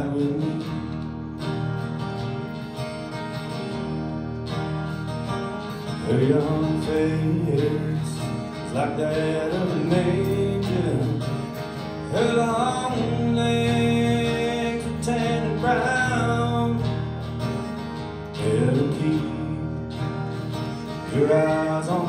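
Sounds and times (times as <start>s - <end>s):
man singing: 0.0s - 1.0s, 6.0s - 17.2s, 18.3s - 22.0s
acoustic guitars playing: 0.0s - 22.0s.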